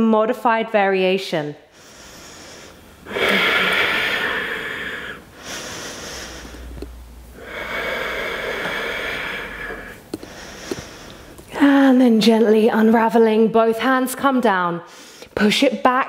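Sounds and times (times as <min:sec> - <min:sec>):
woman breathing deeply: 0:01.7 - 0:11.6, 0:14.8 - 0:15.4.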